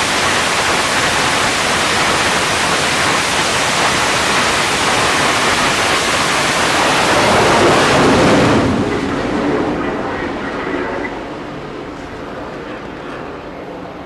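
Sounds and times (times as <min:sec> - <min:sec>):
jet engine whine: 0:00.0 - 0:14.0
jet engines roaring: 0:00.0 - 0:14.0.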